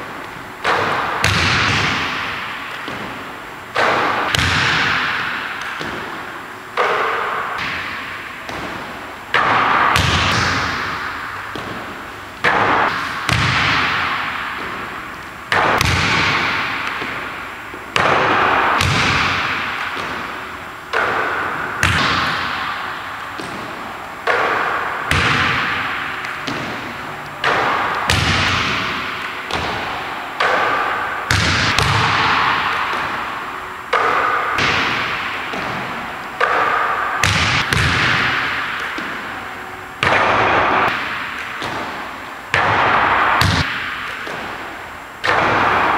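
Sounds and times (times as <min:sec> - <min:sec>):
basketball bouncing on hardwood floor: 0:03.8 - 0:06.2, 0:07.6 - 0:17.2, 0:18.0 - 0:20.3, 0:20.9 - 0:22.6, 0:23.4 - 0:30.7, 0:31.3 - 0:33.2, 0:34.2 - 0:35.8, 0:37.2 - 0:39.2, 0:40.0 - 0:44.6.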